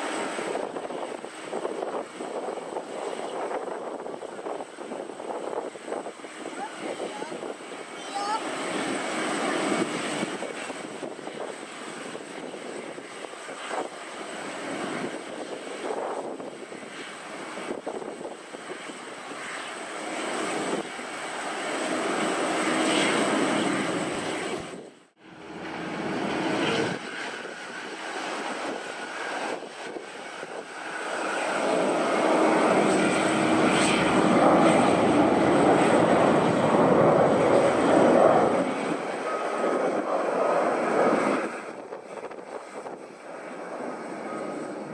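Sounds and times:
distant jet airliner on runway: 0.0 - 44.9
jet airliner taking off: 20.2 - 44.9.

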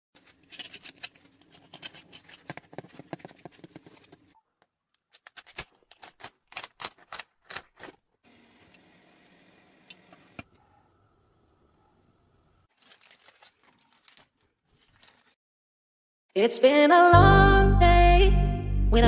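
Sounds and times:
knife crunching crackling skin: 0.4 - 4.3, 5.0 - 8.0, 12.7 - 15.3.

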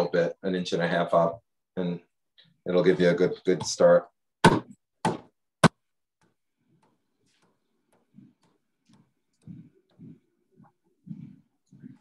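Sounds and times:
adze chopping wood: 4.4 - 5.8.

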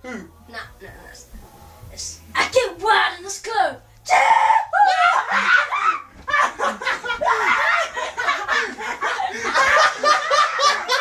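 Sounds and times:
people laughing loudly: 4.8 - 11.0.

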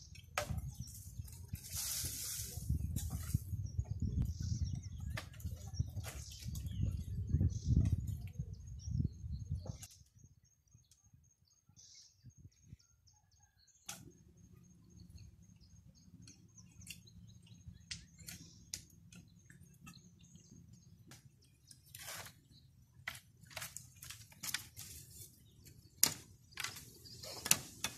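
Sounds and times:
bamboo bumping and rustling: 0.0 - 7.1, 16.2 - 27.9
faint bird chirps: 0.0 - 23.1.

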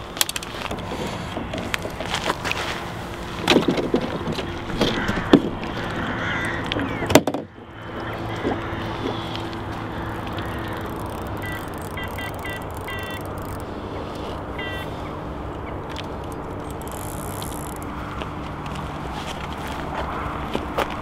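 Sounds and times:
electric motors humming: 0.0 - 21.0
knocks and clicks handling boat: 0.2 - 2.4, 3.4 - 13.6.

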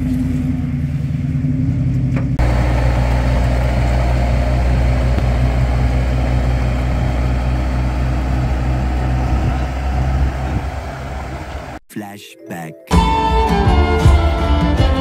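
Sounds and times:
diesel engine humming: 0.0 - 11.8.

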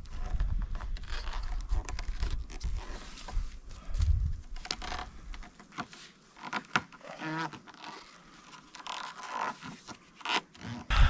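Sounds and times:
microphone handling rumble: 0.0 - 4.6
crackling and scraping handling: 0.0 - 10.9.

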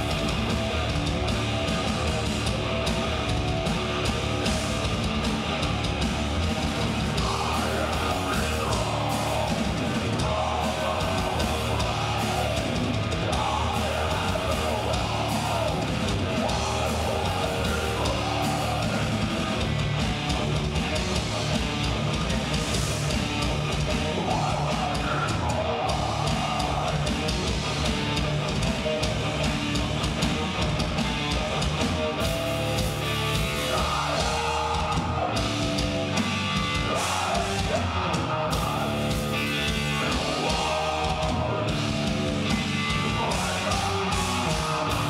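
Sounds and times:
distorted electric guitars: 0.0 - 45.0
drum kit: 0.0 - 45.0
harsh yelled vocals: 0.0 - 45.0.

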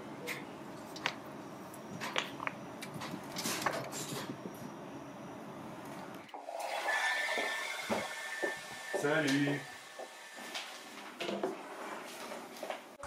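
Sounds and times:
steady high tone: 6.6 - 10.8.

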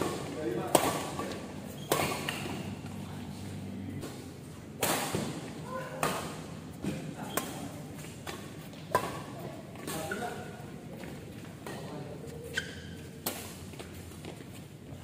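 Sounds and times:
rackets striking shuttlecock: 0.0 - 3.0, 4.8 - 10.3.

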